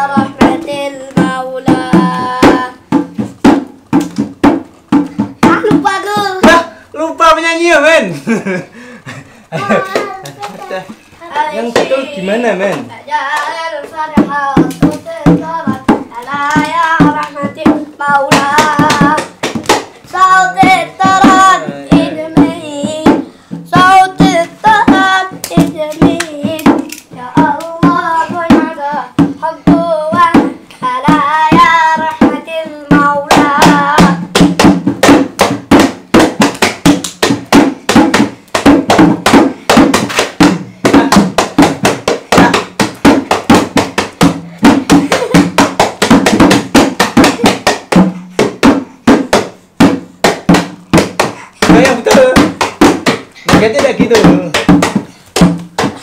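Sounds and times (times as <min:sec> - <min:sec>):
voices singing: 0:00.0 - 0:03.0, 0:09.5 - 0:19.4, 0:20.0 - 0:34.5
hand drum beaten rhythmically: 0:00.0 - 0:10.5, 0:11.2 - 0:56.0.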